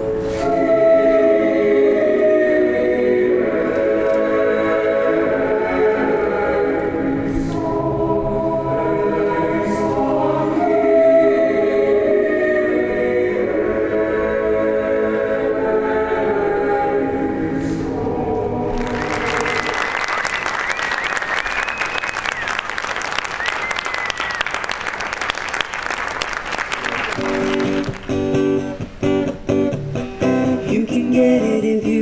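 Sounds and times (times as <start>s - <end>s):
audience clapping: 18.7s - 28.5s.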